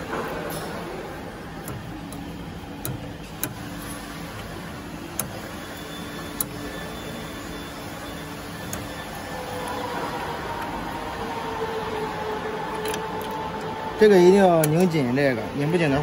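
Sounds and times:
steady low hum: 0.0 - 16.0
hex key clicking on metal: 12.7 - 13.7.

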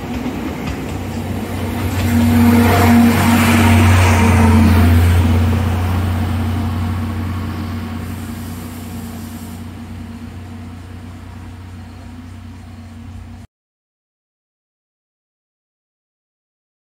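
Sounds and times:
diesel locomotive engine drone: 0.0 - 13.5.

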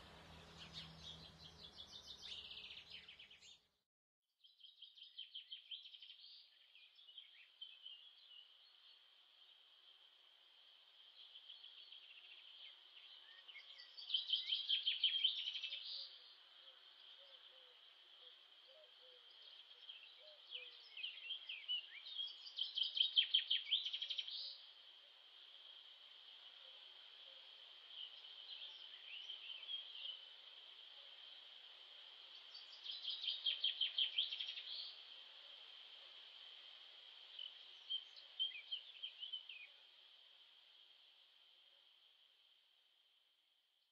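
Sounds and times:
background bird chorus: 0.0 - 3.8, 4.4 - 42.6.

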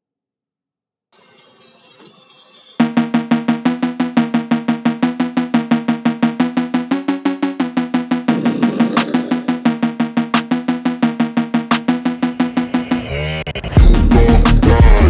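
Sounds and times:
fast repeated pitched notes music: 1.2 - 13.1.

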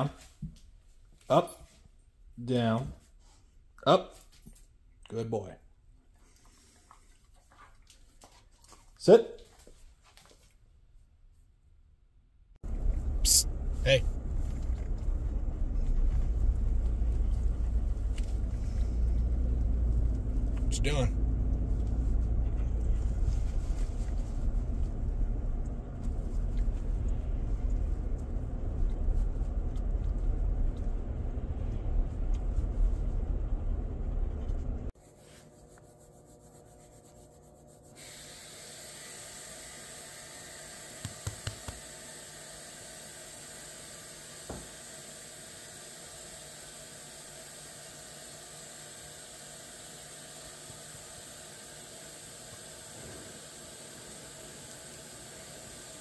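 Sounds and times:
car cabin road rumble: 12.6 - 35.0.

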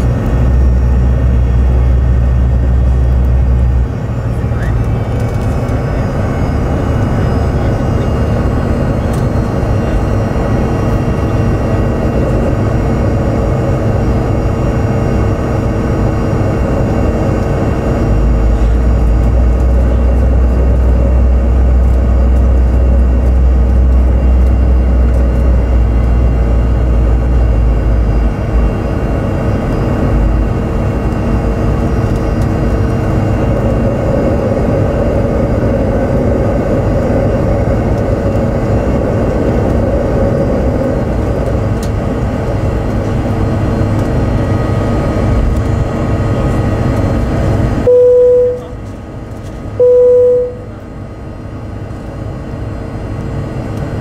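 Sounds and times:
deep cabin rumble: 0.0 - 51.0
jet engines humming: 0.0 - 54.0.

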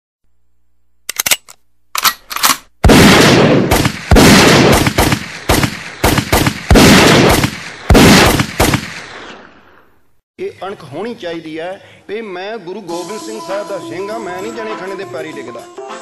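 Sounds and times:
sharp clicks: 1.1 - 2.7
loud echoing gunshots: 2.8 - 9.7.

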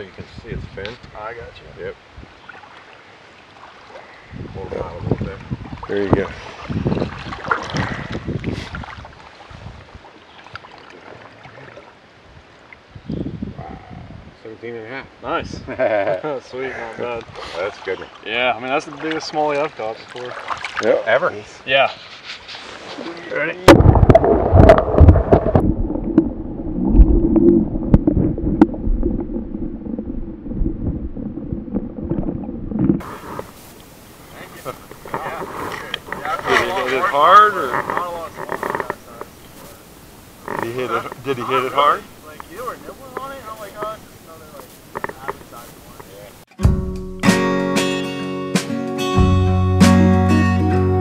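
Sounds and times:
water splashing from wading: 2.4 - 4.3, 5.6 - 12.9, 17.4 - 21.2, 22.6 - 46.4
moving water washing: 22.6 - 46.5
muffled underwater river rumble: 23.6 - 46.4
small ticks: 44.6 - 46.1.

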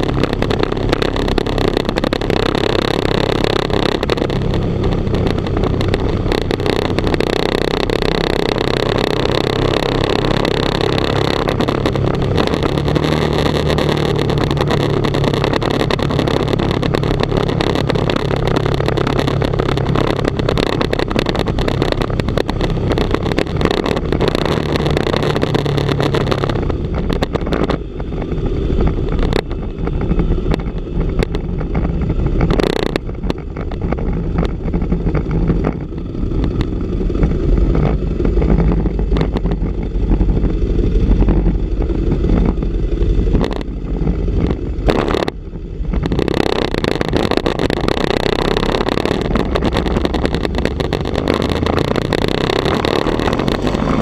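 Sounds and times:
motorcycle engine running: 0.0 - 54.0
wind rumble buffeting microphone: 0.0 - 54.0
wind rush on microphone: 0.0 - 54.0.

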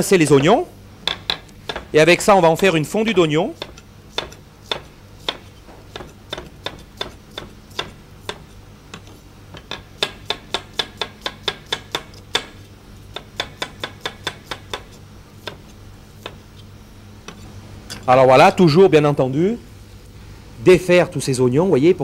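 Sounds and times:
knife chopping on cutting board: 1.1 - 1.9, 3.6 - 16.4.

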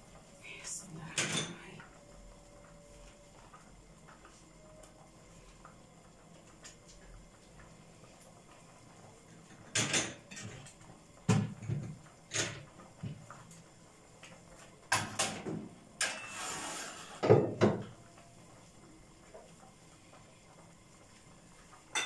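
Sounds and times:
glass scraping on stovetop: 16.0 - 17.6.

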